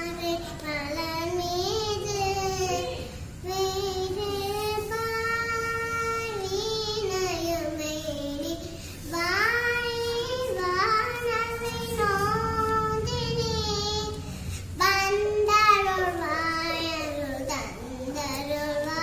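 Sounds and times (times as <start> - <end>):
girl singing: 0.0 - 19.0
short breath: 8.6 - 9.0, 14.3 - 14.8.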